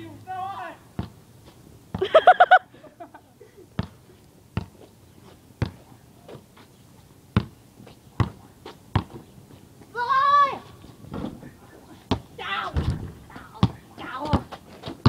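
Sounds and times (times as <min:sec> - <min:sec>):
basketball bouncing on concrete: 0:01.0 - 0:01.2, 0:03.8 - 0:04.0, 0:04.6 - 0:04.8, 0:05.6 - 0:05.8, 0:07.4 - 0:07.6, 0:08.2 - 0:09.2, 0:12.1 - 0:15.0.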